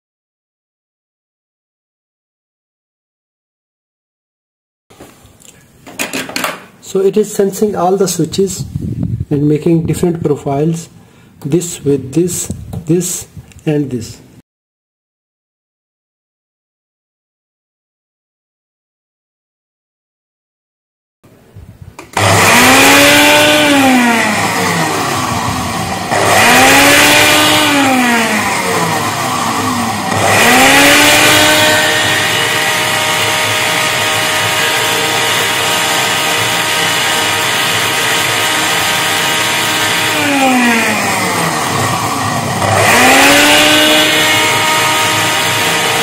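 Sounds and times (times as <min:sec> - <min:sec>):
blender motor whining: 0:22.1 - 0:46.0.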